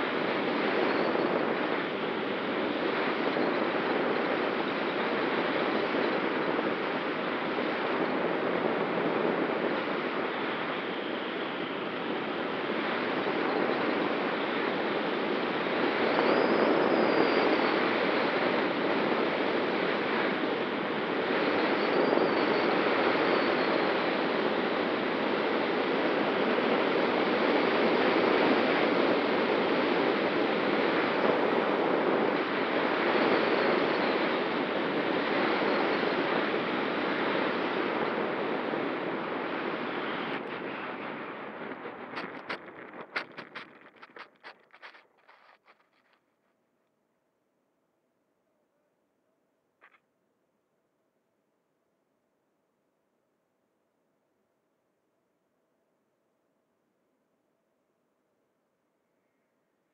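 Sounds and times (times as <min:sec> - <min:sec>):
air rushing over wing: 0:38.2 - 0:46.0.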